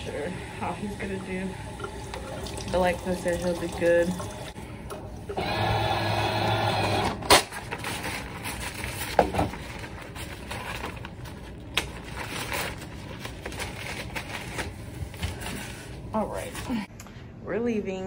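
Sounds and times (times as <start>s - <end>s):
tap water running: 0.0s - 7.1s
paper towels rustling: 7.5s - 16.9s.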